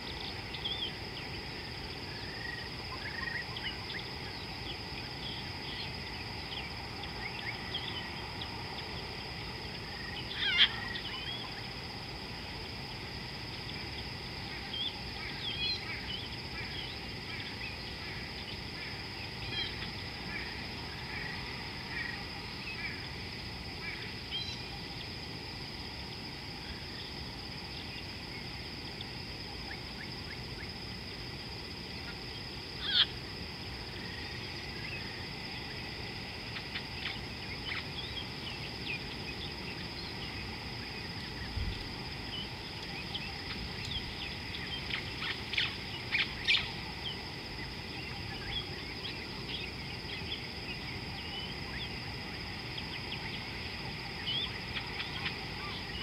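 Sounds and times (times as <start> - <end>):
wild birds chirping: 0.0 - 25.3, 31.8 - 56.0
constant high whine: 0.0 - 56.0
steady outdoor hiss: 0.0 - 56.0.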